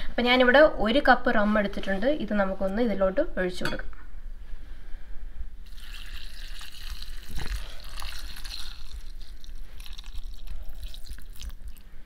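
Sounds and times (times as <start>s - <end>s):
rum pouring over fruit: 5.6s - 11.9s.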